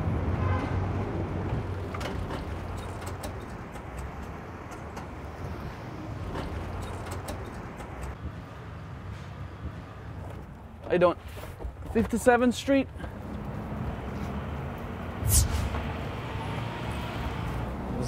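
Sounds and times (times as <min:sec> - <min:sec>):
cars driving past: 0:13.0 - 0:18.0.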